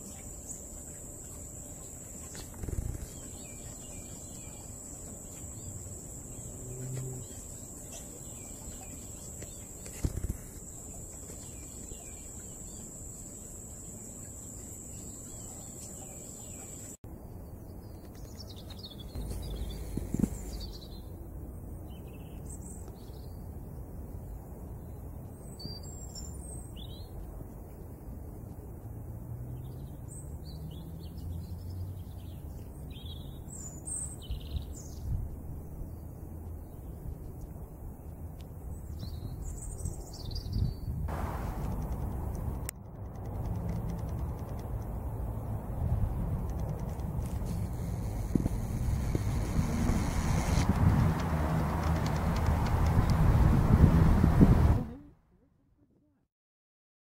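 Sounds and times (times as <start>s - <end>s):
songbird chirping and singing: 0.0s - 21.1s
low background rumble: 40.7s - 55.2s
high-pitched insect drone: 47.5s - 50.7s.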